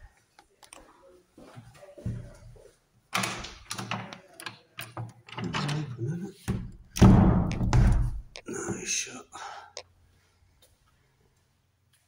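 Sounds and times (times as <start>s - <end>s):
faint shuffling: 0.0s - 3.0s, 8.4s - 12.0s
door knocks and rattles: 4.9s - 8.3s
door thud: 6.5s - 8.3s.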